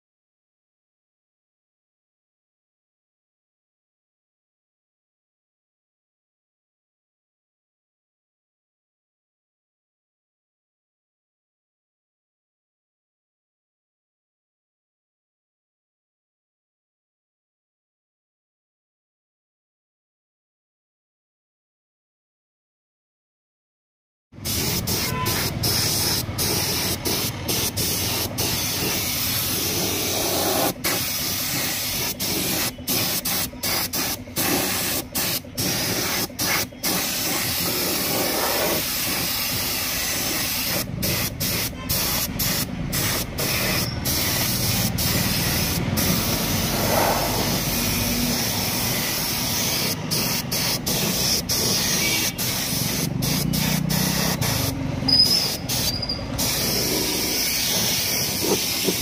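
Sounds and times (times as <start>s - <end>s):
paint spray gun hissing: 24.4s - 59.0s.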